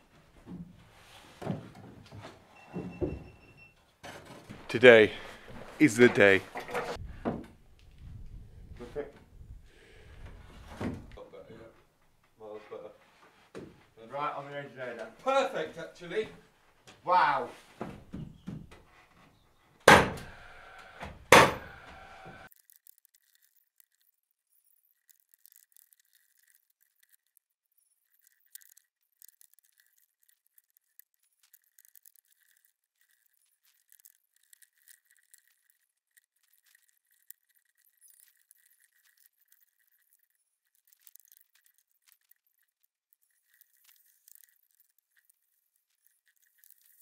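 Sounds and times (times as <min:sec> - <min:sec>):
faint scattered ticks: 0:22.4 - 0:47.0.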